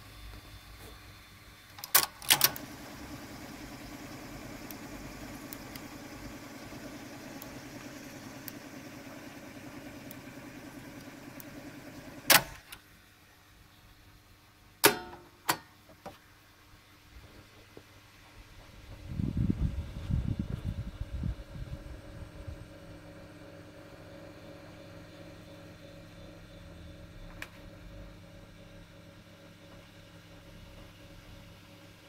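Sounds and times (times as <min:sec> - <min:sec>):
tape recorder motor whirring: 0:00.0 - 0:12.8, 0:19.0 - 0:31.9
tape recorder mechanical clunks: 0:01.7 - 0:02.9, 0:12.2 - 0:12.8, 0:14.8 - 0:15.7.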